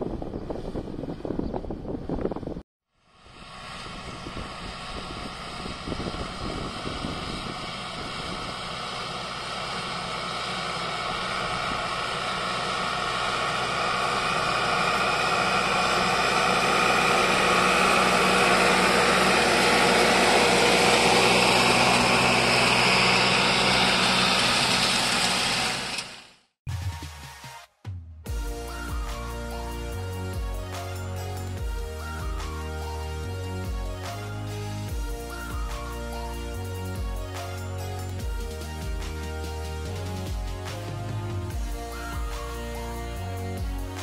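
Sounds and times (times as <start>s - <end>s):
harrow discs grinding soil: 3.2s - 26.3s
tractor diesel engine under load: 3.3s - 26.3s.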